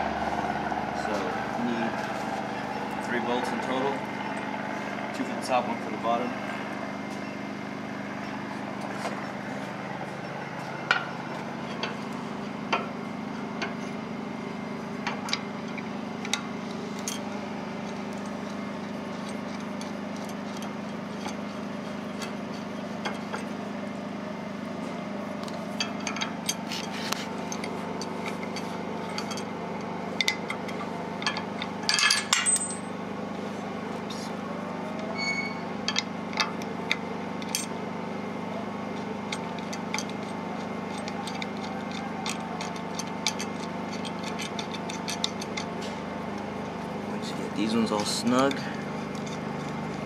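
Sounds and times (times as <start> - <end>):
steady low hum: 0.0 - 50.0
metallic clinks of bolts: 31.2 - 32.9.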